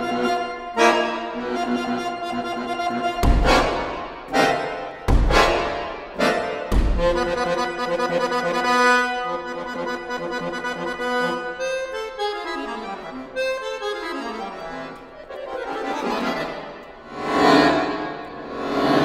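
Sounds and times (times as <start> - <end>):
accordion playing classical piece: 0.0 - 19.0.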